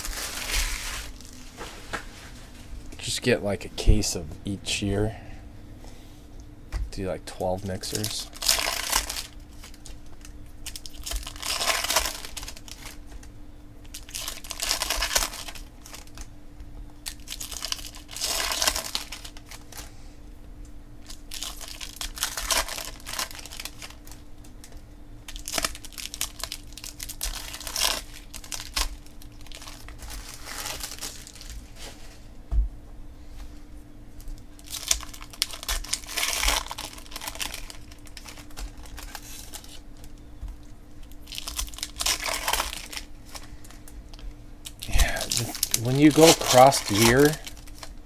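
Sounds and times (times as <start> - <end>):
foil card wrappers tearing and crinkling: 0.0 - 1.7, 7.4 - 16.3, 17.0 - 19.9, 21.0 - 31.9, 34.2 - 48.0.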